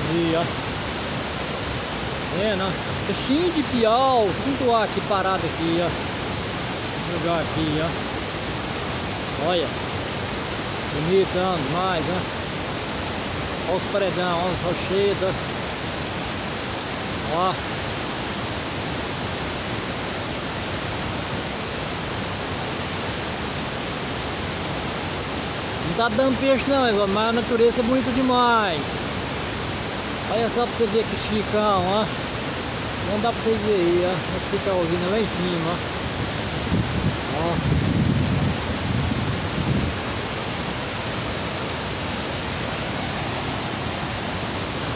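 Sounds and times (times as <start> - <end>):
waterfall rushing: 0.0 - 44.9
wind buffeting microphone: 36.1 - 41.0.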